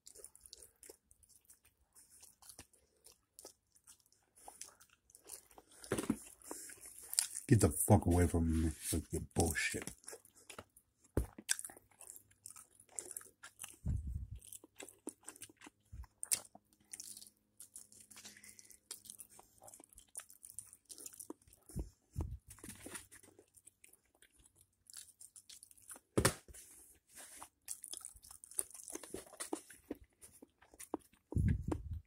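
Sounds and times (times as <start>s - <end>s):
person chewing crunchy food: 0.0s - 7.6s, 9.4s - 32.0s.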